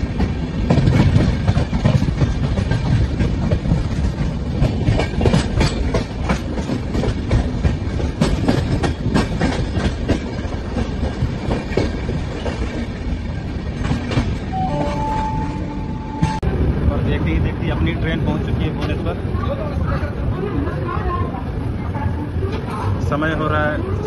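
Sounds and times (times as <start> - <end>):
train wheels clattering over rail joints: 0.0 - 15.1
train rumble: 0.0 - 24.0.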